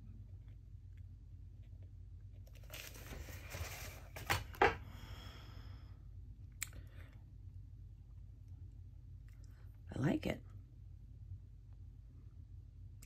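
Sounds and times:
paper rustling and sliding: 0:02.5 - 0:04.8.

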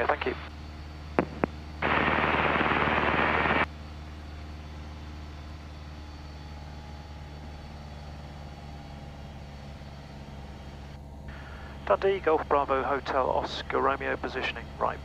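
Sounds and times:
piston engine droning in cabin: 0:00.0 - 0:15.0
radio static burst: 0:01.2 - 0:03.7.

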